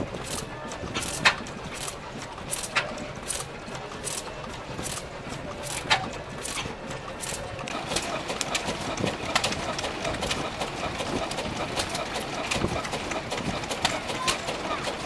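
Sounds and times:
crowd voices: 0:00.0 - 0:15.0
stationary engines clattering: 0:00.0 - 0:15.0.

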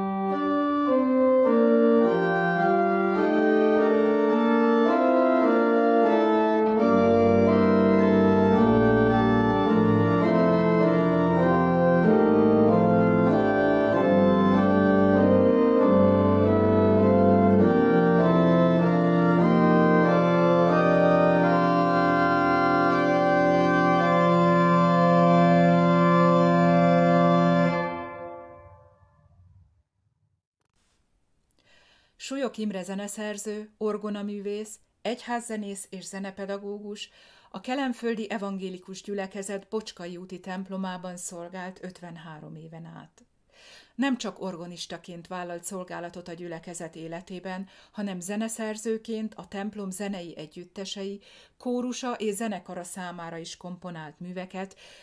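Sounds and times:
low organ pedal notes: 0:00.0 - 0:29.0
pipe organ chords: 0:00.0 - 0:29.4.

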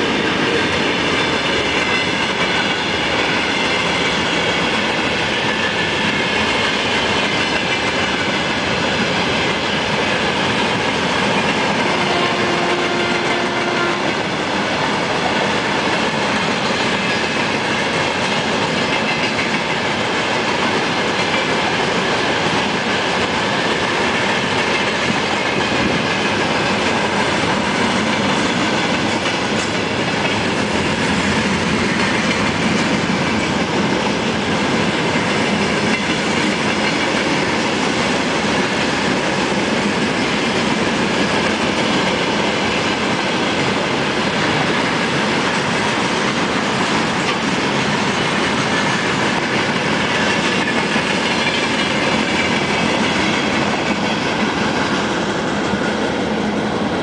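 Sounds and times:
train wheels running on rails: 0:00.0 - 0:57.0.

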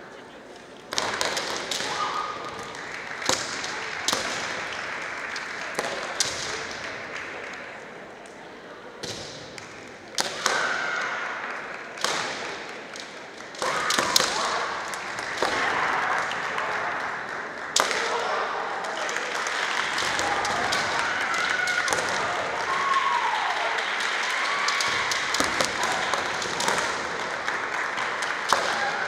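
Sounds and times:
bamboo swords striking: 0:10.2 - 0:10.9, 0:13.6 - 0:14.6.

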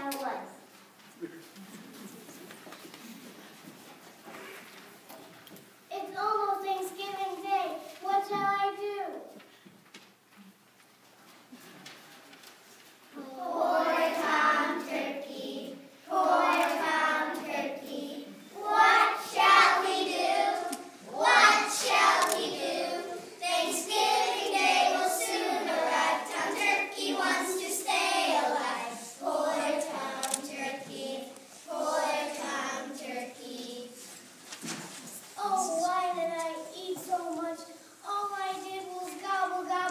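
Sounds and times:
young children singing: 0:13.1 - 0:34.2, 0:35.4 - 0:39.9.

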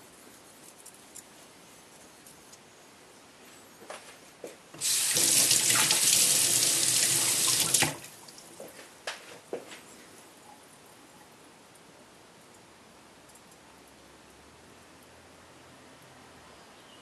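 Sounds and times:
water running: 0:04.8 - 0:08.7.

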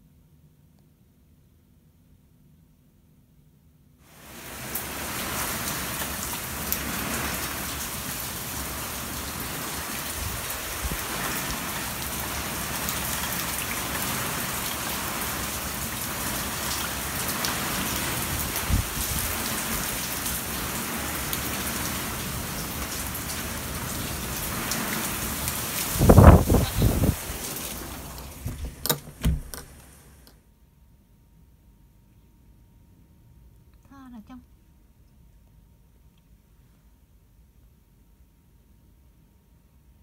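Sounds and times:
heavy rain hissing: 0:04.0 - 0:30.3
strong wind: 0:18.1 - 0:19.8, 0:25.1 - 0:29.6
raindrops clicking on surfaces: 0:21.2 - 0:30.4
dull knock: 0:28.5 - 0:29.7.

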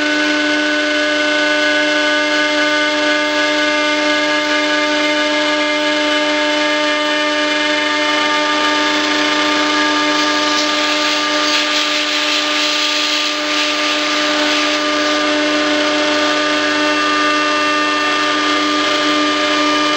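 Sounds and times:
power tool whining: 0:00.0 - 0:19.9
rushing hiss: 0:10.0 - 0:15.3.

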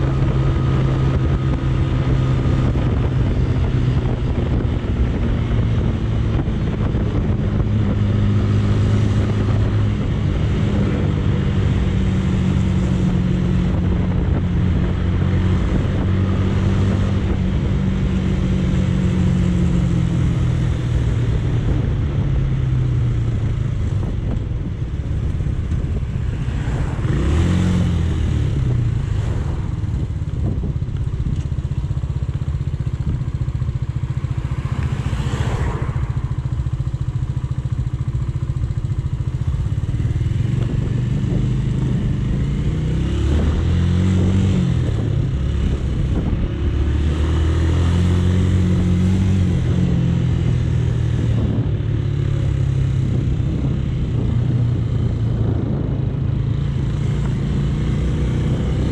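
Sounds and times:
motorcycle engine revving: 0:00.0 - 0:58.9
road noise: 0:00.0 - 0:58.9
wind noise: 0:00.0 - 0:58.9.

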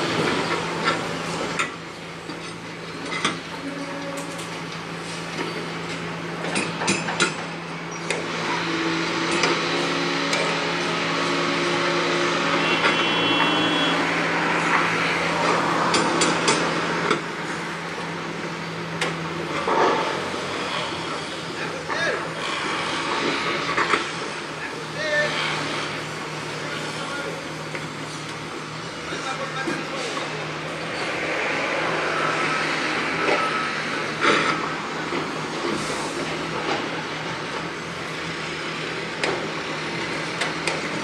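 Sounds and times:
workers' voices: 0:14.0 - 0:41.0.

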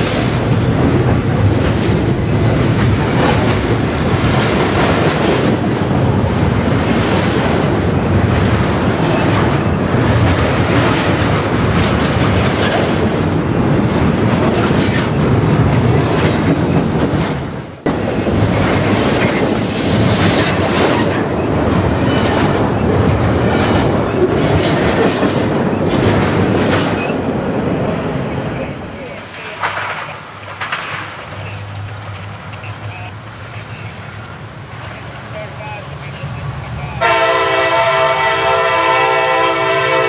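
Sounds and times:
train cars clacking over track: 0:00.0 - 0:40.0
train wheels rumbling on rails: 0:00.0 - 0:40.0.

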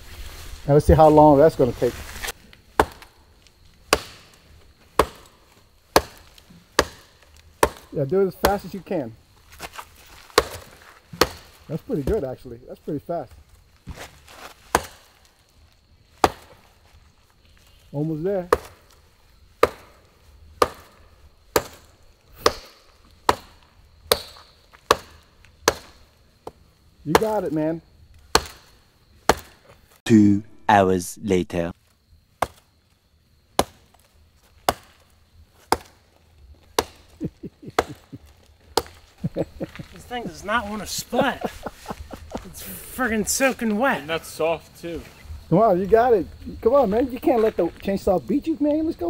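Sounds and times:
hatchet chopping into log: 0:02.8 - 0:03.1, 0:03.9 - 0:04.3, 0:05.0 - 0:05.3, 0:05.9 - 0:08.7, 0:10.4 - 0:11.5, 0:14.7 - 0:15.0, 0:16.2 - 0:16.6, 0:18.5 - 0:18.8, 0:19.6 - 0:20.0, 0:20.6 - 0:26.0, 0:27.1 - 0:27.4, 0:28.3 - 0:28.7, 0:29.3 - 0:29.6, 0:32.4 - 0:32.6, 0:33.6 - 0:33.8, 0:34.6 - 0:35.0, 0:35.7 - 0:36.0, 0:36.8 - 0:37.0, 0:37.8 - 0:38.0, 0:38.8 - 0:39.0.

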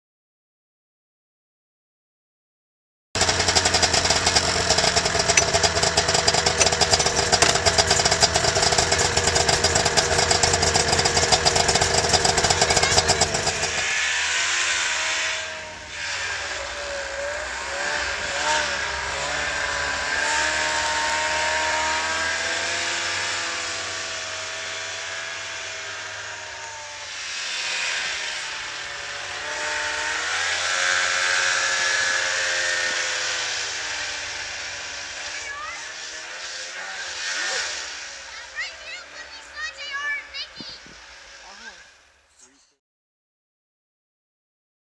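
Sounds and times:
snowmobile engine: 0:03.2 - 0:42.8.

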